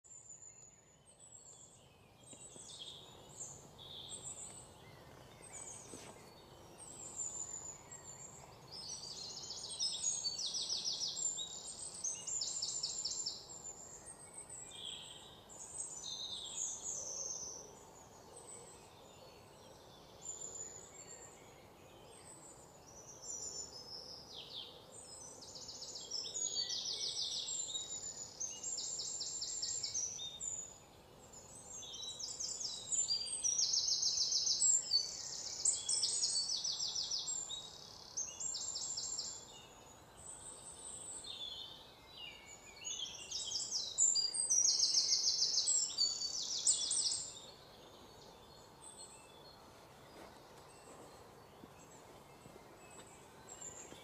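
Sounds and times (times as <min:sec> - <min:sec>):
low background hiss: 0:00.1 - 0:54.0.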